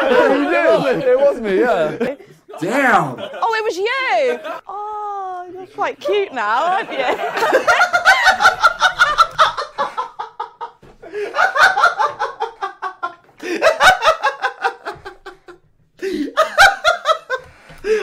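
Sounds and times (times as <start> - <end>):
hearty laughter: 6.0 - 18.0.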